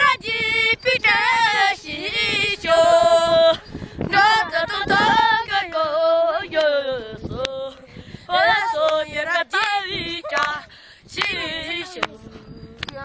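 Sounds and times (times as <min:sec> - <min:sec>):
monks singing unaccompanied: 0:00.0 - 0:12.8.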